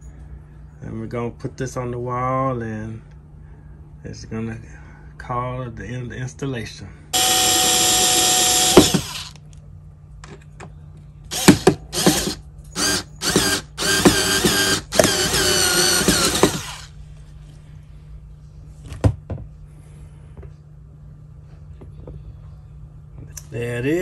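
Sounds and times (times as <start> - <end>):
power screwdriver whining: 7.2 - 9.4, 11.3 - 16.9.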